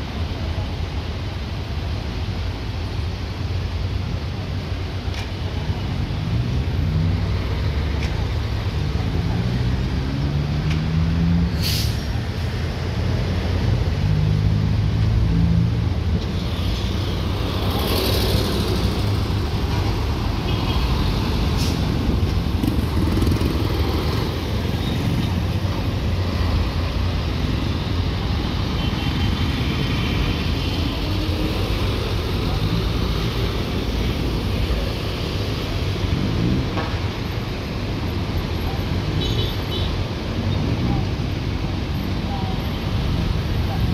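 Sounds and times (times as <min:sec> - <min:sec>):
low rumble of traffic: 0:00.0 - 0:43.9
brief hiss: 0:11.5 - 0:12.5.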